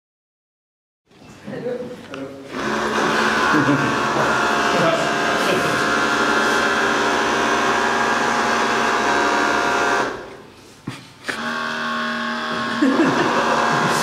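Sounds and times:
small robots buzzing on tiles: 2.5 - 10.3, 11.4 - 14.0.

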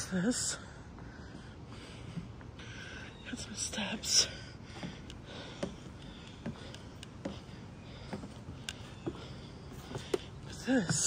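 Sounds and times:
footsteps on wooden planks: 4.2 - 11.0.

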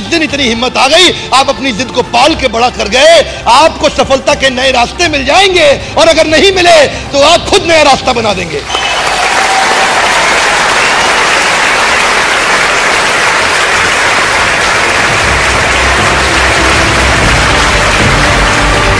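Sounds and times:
music: 0.0 - 8.9, 12.8 - 18.9
audience applause: 8.6 - 18.9.

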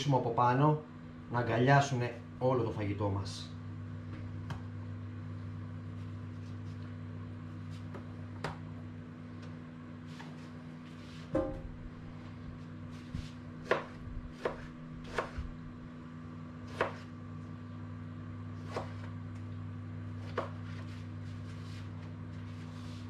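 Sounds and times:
steady low hum: 0.0 - 23.0
knife chopping on plastic board: 13.6 - 15.5, 16.7 - 17.1, 18.6 - 19.1, 20.2 - 20.9.

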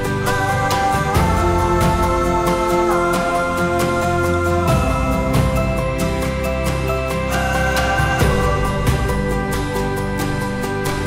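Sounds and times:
background music with held chords: 0.0 - 11.0.

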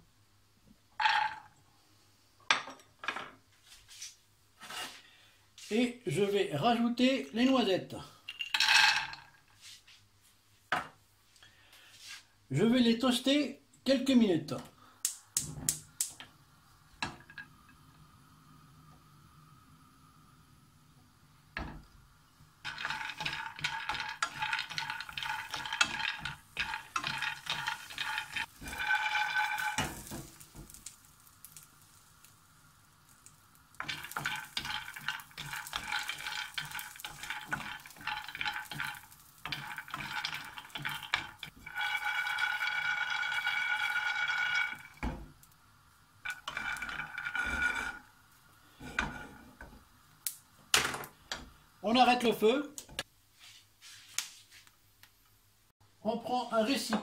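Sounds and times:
nuts rattling in a frying pan: 8.3 - 9.4, 22.6 - 53.0.

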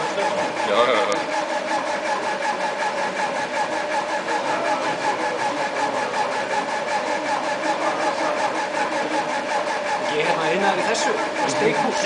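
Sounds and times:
stepper motors whining: 0.0 - 12.0.

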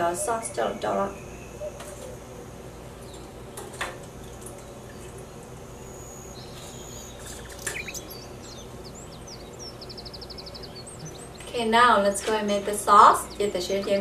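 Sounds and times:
bird chirping: 5.7 - 11.7, 12.8 - 14.0.

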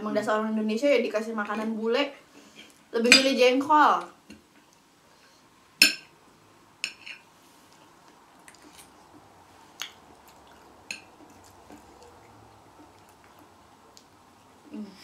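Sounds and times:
cutlery clinking on ceramic plates: 5.8 - 6.1.

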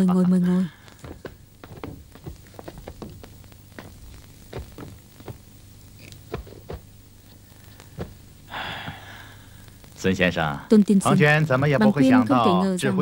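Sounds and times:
soft footsteps on a floor: 0.9 - 5.5, 6.1 - 8.3.

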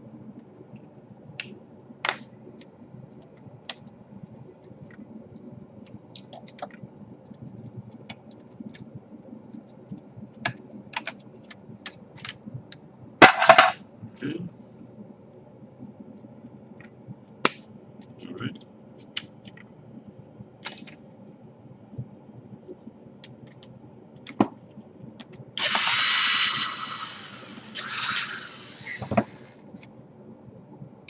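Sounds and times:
parts clattering: 13.2 - 13.8.

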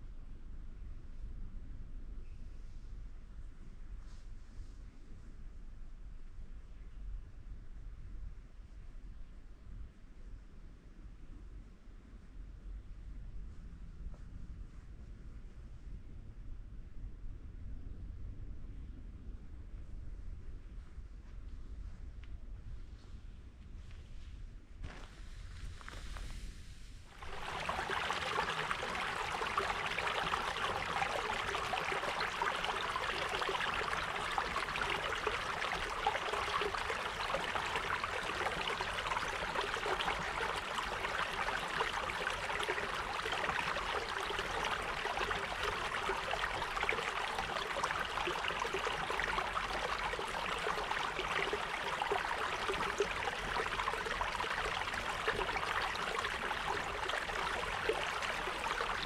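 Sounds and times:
running water rushing: 27.2 - 59.0.

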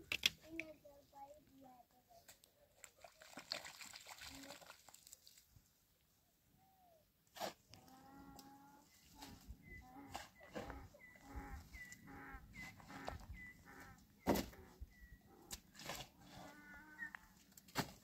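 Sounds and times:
farm animal calling: 7.8 - 17.4.

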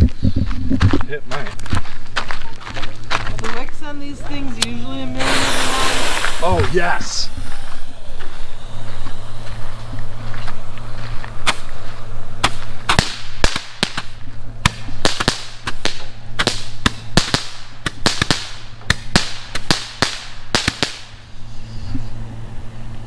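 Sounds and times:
fireworks hissing: 5.2 - 10.3.

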